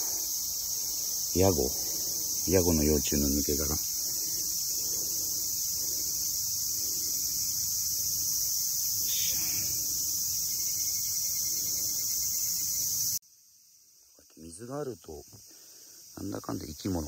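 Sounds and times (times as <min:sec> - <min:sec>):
insects chirping: 0:00.0 - 0:17.0.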